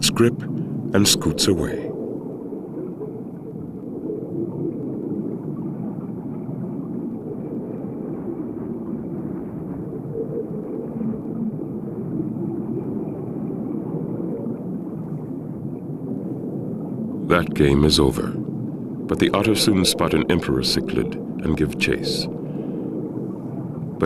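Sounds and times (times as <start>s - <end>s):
low underwater rumble: 0.0s - 24.0s.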